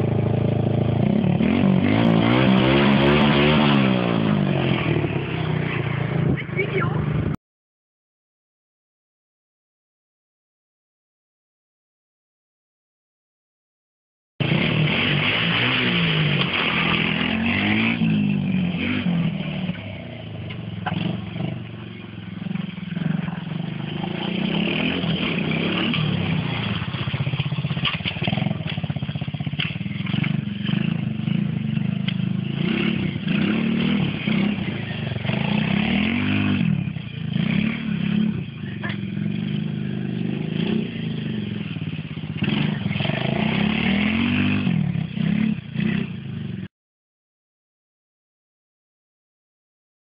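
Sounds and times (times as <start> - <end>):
quad engine revving: 0.0 - 7.4, 14.4 - 46.7.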